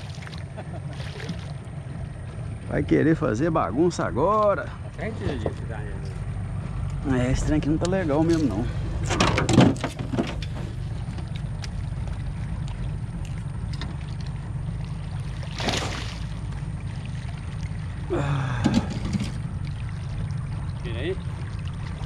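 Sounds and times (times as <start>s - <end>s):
fish splashing at surface: 0.0s - 1.6s, 13.3s - 18.0s
low rumble: 0.0s - 22.0s.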